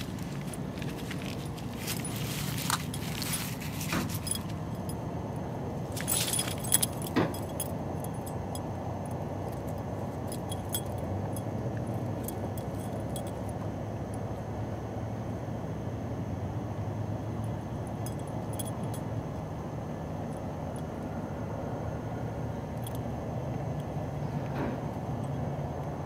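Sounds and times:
collar tags jingling: 0:00.0 - 0:14.2, 0:17.4 - 0:19.4.

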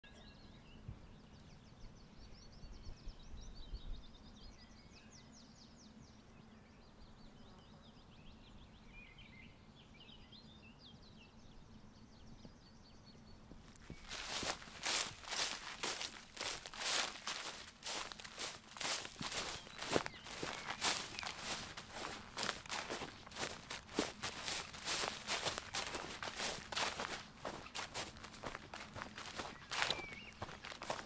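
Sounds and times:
birds chirping: 0:06.9 - 0:31.0
footsteps on grass: 0:13.5 - 0:31.0.

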